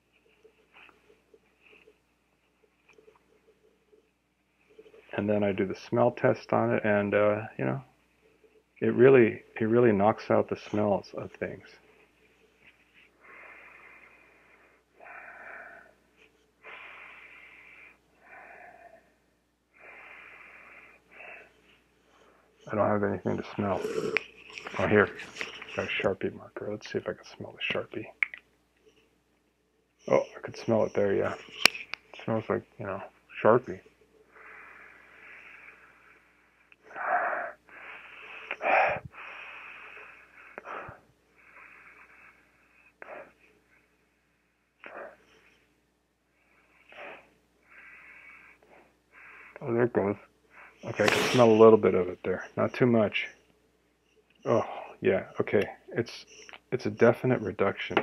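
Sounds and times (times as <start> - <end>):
wheezy breaths through a mask: 12.0 - 22.7, 34.2 - 51.7.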